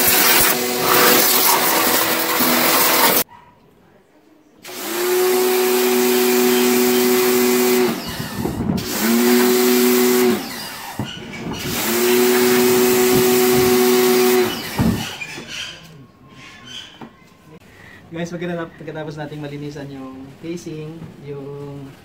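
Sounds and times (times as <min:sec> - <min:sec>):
pressure washer pump humming: 0:00.0 - 0:03.2, 0:04.6 - 0:15.4
water jet hissing: 0:00.0 - 0:03.2.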